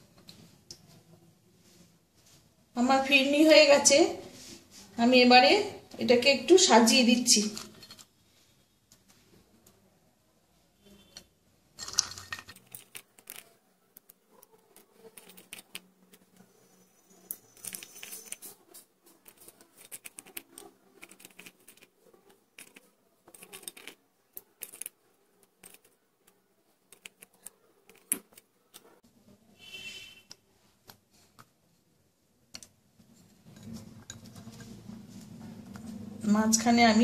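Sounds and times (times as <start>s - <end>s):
hands placing nuts in a bowl: 11.8s - 16.5s, 17.2s - 28.9s.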